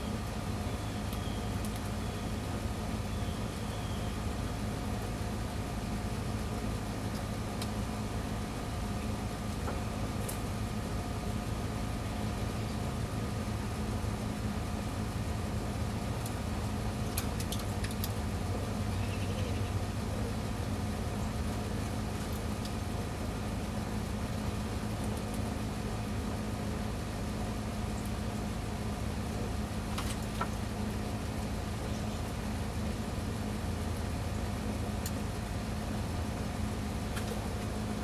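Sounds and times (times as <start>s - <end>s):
faint chirp: 0.0s - 2.4s, 3.0s - 4.2s, 18.9s - 19.7s
low mechanical hum: 0.0s - 38.0s.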